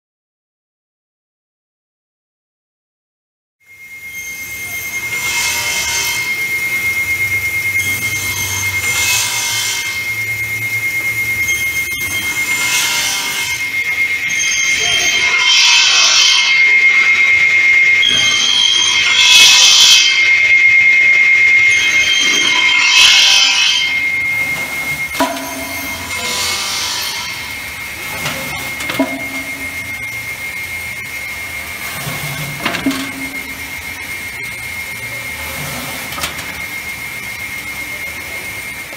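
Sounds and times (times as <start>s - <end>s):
circular saws whining: 3.7s - 38.9s
motor hum: 5.6s - 38.8s
saw rasping through boards: 8.0s - 10.1s, 11.9s - 17.2s, 21.6s - 30.2s.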